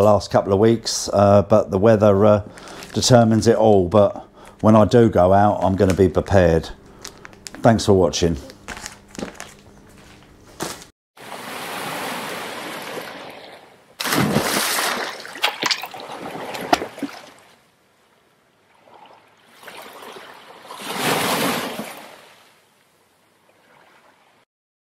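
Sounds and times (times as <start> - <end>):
water splash: 11.2 - 17.6, 18.8 - 22.5
surging water: 11.2 - 22.6.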